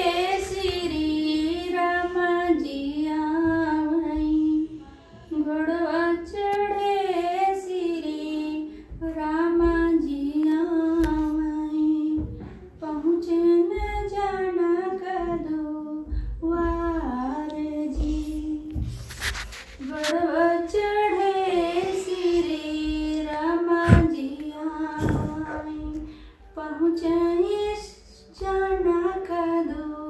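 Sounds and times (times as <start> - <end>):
woman singing unaccompanied: 0.0 - 18.9, 19.8 - 30.0
brief bumps: 21.7 - 26.1.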